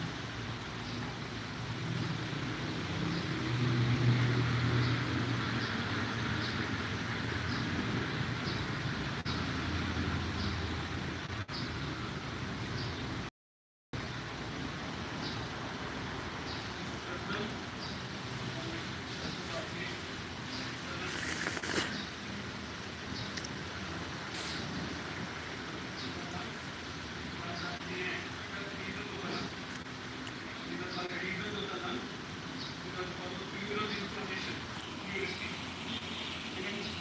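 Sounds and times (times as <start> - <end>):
low mechanical hum: 0.0 - 3.6, 14.0 - 37.0.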